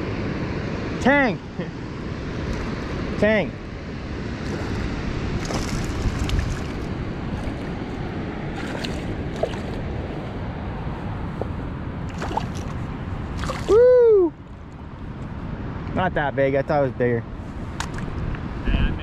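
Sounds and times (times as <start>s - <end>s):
rushing water: 4.4s - 10.4s, 12.1s - 13.9s
fish splashing in water: 5.4s - 9.9s, 12.1s - 13.8s
person crying out: 13.7s - 14.3s.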